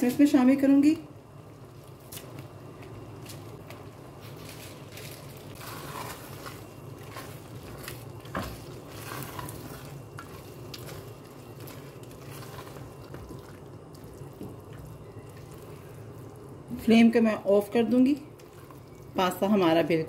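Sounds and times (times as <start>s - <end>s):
spatula scraping a pot: 5.6s - 13.4s.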